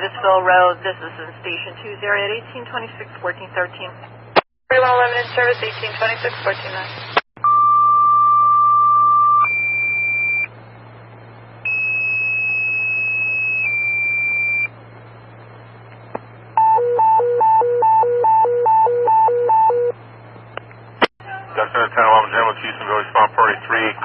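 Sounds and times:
steady hum: 0.0s - 7.7s, 9.1s - 24.0s
two-tone paging tones: 16.6s - 19.9s.

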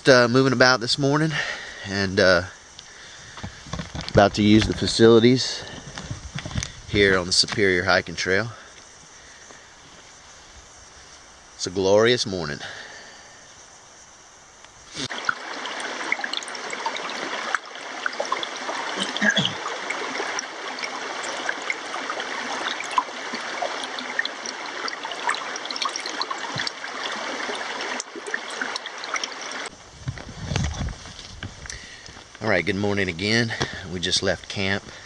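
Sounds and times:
stream babbling over stones: 0.0s - 13.4s, 14.8s - 35.0s.

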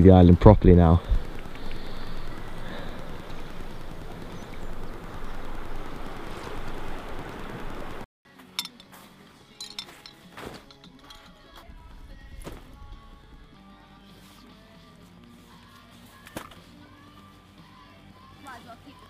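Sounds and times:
faint music: 0.0s - 19.0s
wind: 0.0s - 19.0s
sharp clinks and knocks: 8.5s - 8.9s, 9.5s - 11.4s.

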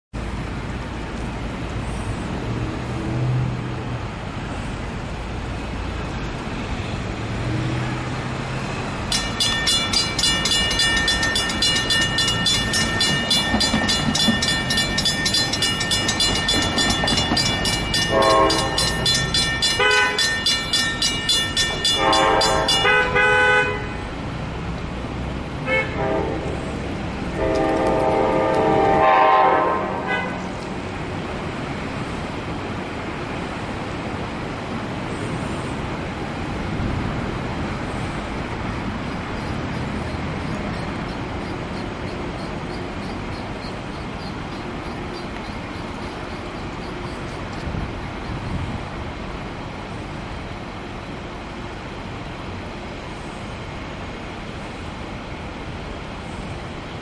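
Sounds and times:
traffic: 0.1s - 57.0s
train rumble: 0.2s - 57.0s
crossing warning bell ringing: 8.6s - 24.2s
train horn blasts: 18.0s - 20.4s, 21.8s - 24.2s, 25.6s - 30.5s.

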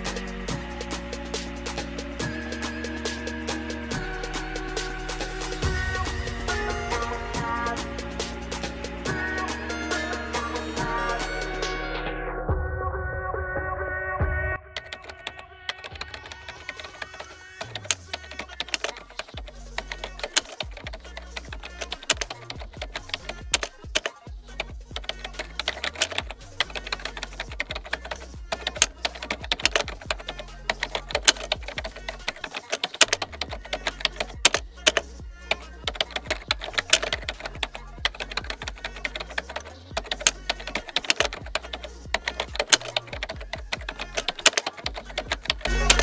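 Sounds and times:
background music with bass line: 0.0s - 13.6s, 17.7s - 32.4s, 33.2s - 44.4s, 45.0s - 46.0s
keyboard key clicks: 14.8s - 24.2s, 24.9s - 46.0s.

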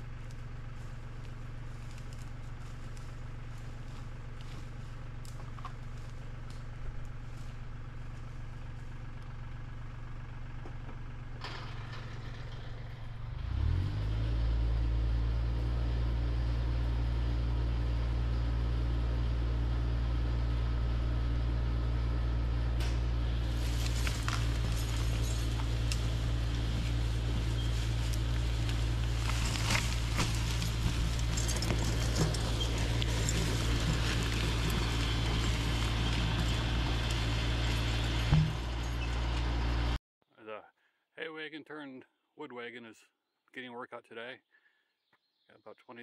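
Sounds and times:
tractor diesel engine running: 0.0s - 40.0s
rustling: 23.3s - 39.6s.

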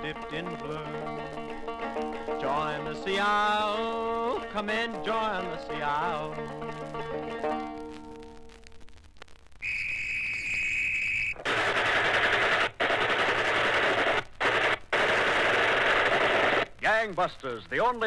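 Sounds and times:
folk song singing: 0.0s - 7.7s
police whistle: 9.6s - 11.4s
machine-gun fire: 11.4s - 16.7s.

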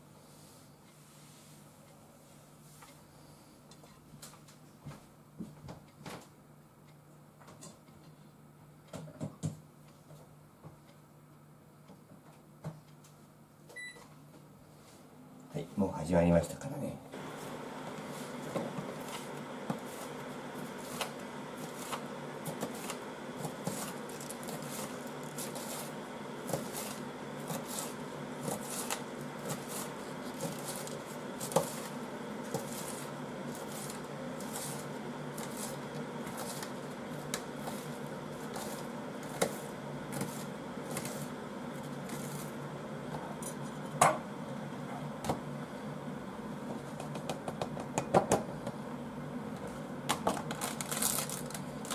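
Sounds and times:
steady low hum: 9.6s - 51.9s
knife chopping cabbage: 18.6s - 41.3s.

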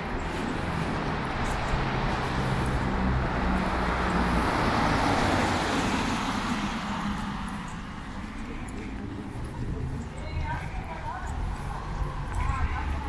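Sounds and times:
vehicle engine hum: 0.0s - 13.0s.

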